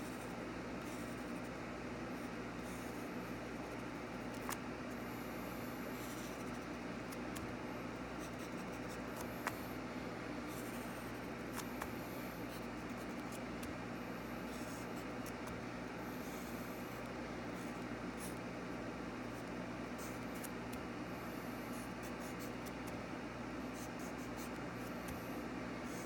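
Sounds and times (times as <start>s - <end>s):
pencil scratching on paper: 0.0s - 1.5s, 5.9s - 7.5s, 8.2s - 9.7s, 10.5s - 13.7s, 14.4s - 15.4s, 19.3s - 20.6s, 23.7s - 26.0s.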